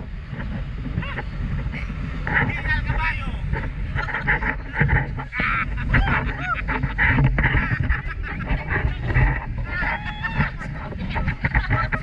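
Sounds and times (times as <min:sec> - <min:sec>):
wind and engine rumble: 0:00.0 - 0:12.0
people shrieking and yelling: 0:05.3 - 0:06.9, 0:09.6 - 0:10.8.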